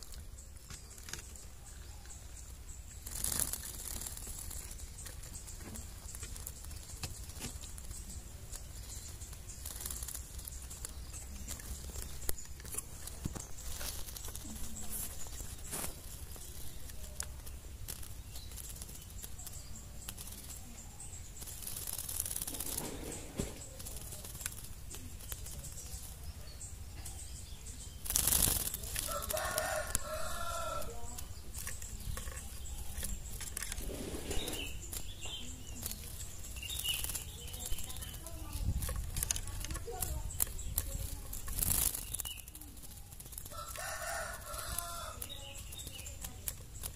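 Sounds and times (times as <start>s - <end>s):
bird fluttering feathers: 2.8s - 26.3s, 27.8s - 46.9s
rooster crowing: 29.1s - 31.0s, 43.5s - 45.2s.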